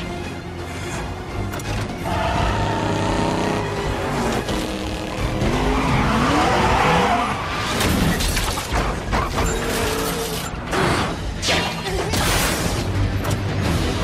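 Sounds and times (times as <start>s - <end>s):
tyres skidding: 0.0s - 10.7s
film music score: 0.0s - 14.0s
car engines revving: 0.3s - 10.8s.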